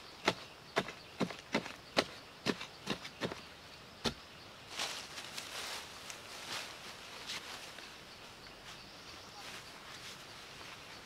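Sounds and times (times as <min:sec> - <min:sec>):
leafy branches rustling: 0:04.6 - 0:11.0.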